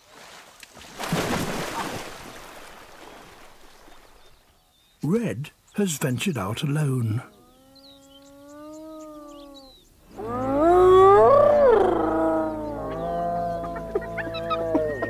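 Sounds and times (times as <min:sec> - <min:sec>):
wild animal calls: 0:07.2 - 0:15.0.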